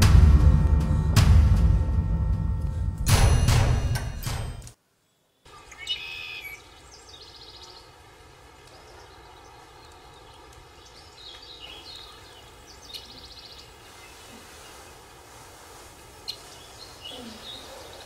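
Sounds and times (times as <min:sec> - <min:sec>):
low background hiss: 0:04.8 - 0:18.0
pulsed chirping calls: 0:05.5 - 0:07.8.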